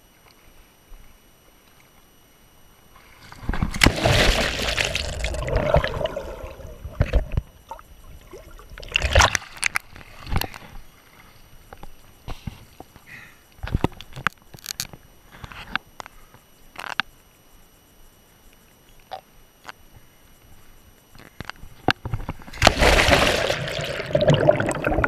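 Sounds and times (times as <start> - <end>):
short splashes: 3.3 - 6.7, 22.5 - 25.0
loud splash into water: 3.7 - 6.6, 22.5 - 25.0
muffled underwater gurgling: 22.5 - 25.0.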